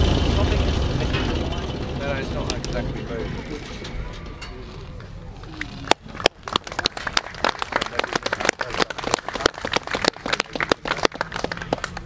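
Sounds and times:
small group clapping: 5.8s - 12.0s.

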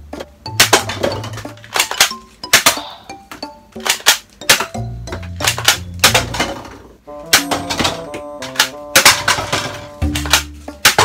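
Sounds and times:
background music: 0.0s - 11.0s
toy gun plastic clacks: 1.6s - 2.8s.

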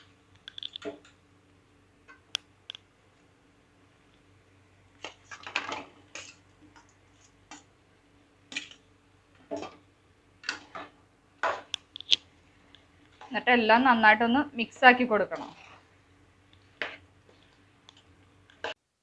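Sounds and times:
spatula scraping a metal pan: 15.3s - 15.8s.

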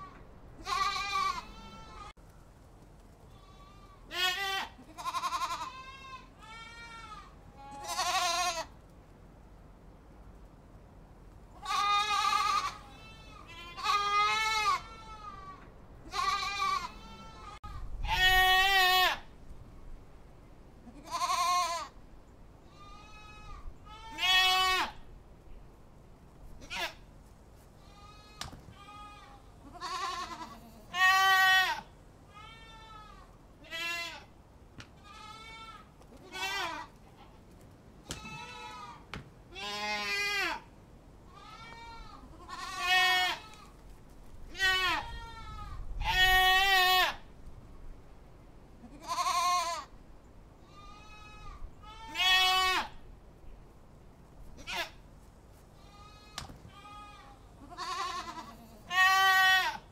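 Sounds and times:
goats bleating: 0.0s - 2.2s, 3.3s - 8.7s, 11.6s - 19.2s, 20.9s - 21.9s, 22.7s - 25.0s, 26.6s - 27.0s, 27.8s - 34.3s, 35.0s - 37.4s, 38.1s - 40.6s, 41.3s - 43.7s, 44.5s - 47.2s, 48.8s - 49.9s, 50.7s - 53.0s, 54.6s - 55.0s, 55.8s - 59.9s.

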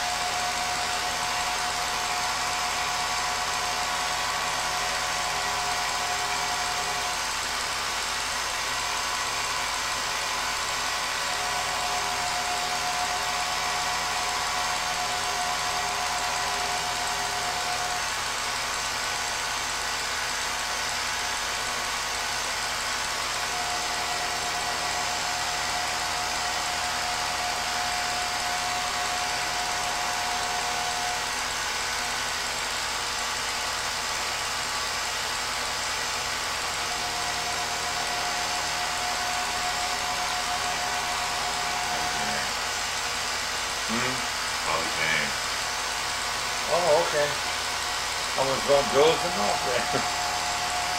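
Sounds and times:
film projector whirring: 0.0s - 50.9s
thin hum tone: 36.8s - 43.1s.

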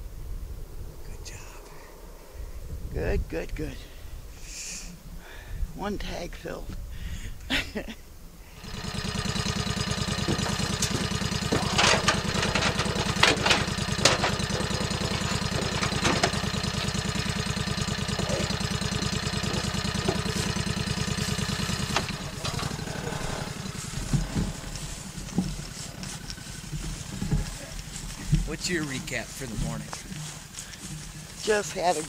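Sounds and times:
utility vehicle engine idling: 8.5s - 32.0s
clunks in metal cargo bed: 8.6s - 28.5s.

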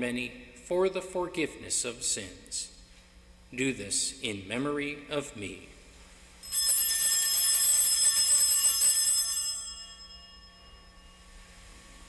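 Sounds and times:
small bells ringing: 6.4s - 12.0s.

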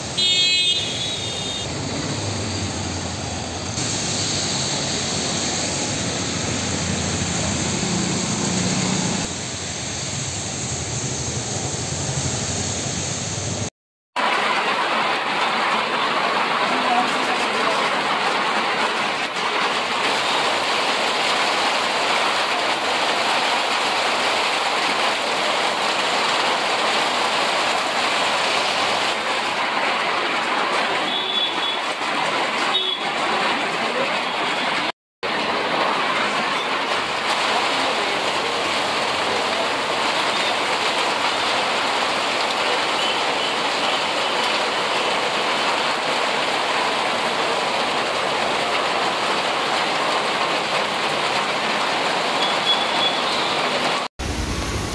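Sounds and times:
vehicles passing: 0.0s - 13.7s
heavy rain on street: 0.0s - 54.9s.

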